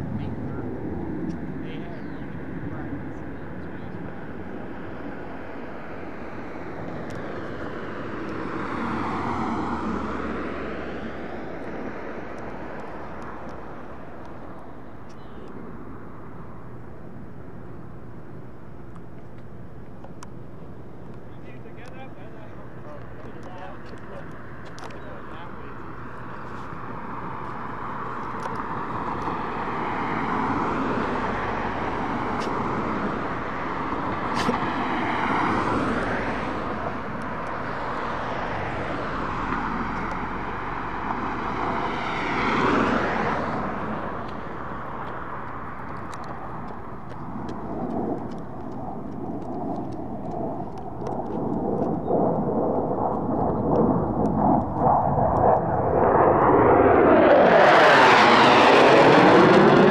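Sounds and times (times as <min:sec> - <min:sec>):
jets flying past overhead: 0:00.0 - 0:59.9.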